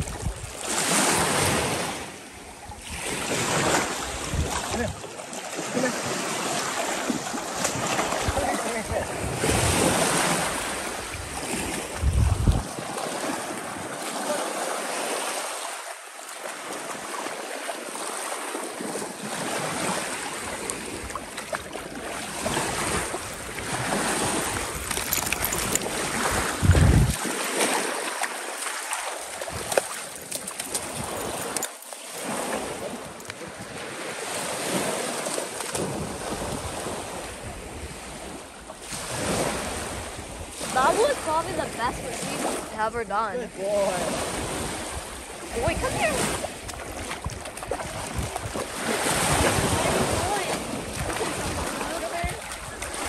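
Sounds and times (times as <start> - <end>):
waves lapping on sandy shore: 0.0 - 53.0
wind buffeting microphone: 7.7 - 12.9, 22.4 - 27.3, 44.4 - 53.0.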